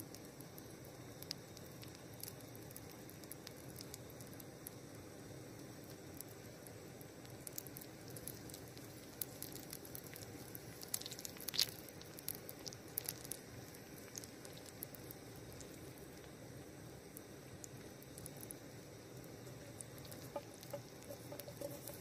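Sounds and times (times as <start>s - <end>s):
hot sap crackling and sizzling: 0.0s - 22.0s
twig scraping a pan: 19.6s - 22.0s.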